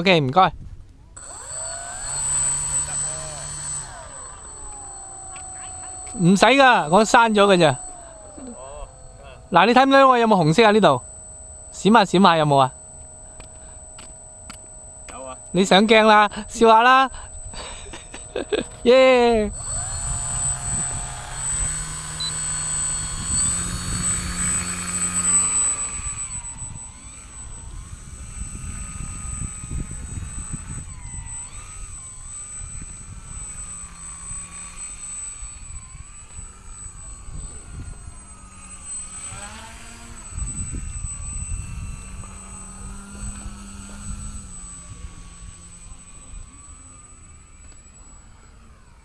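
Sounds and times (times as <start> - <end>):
model plane motor whine: 0.6 - 49.0
wind rumble on microphone: 18.7 - 25.0, 25.7 - 33.7, 39.3 - 46.6.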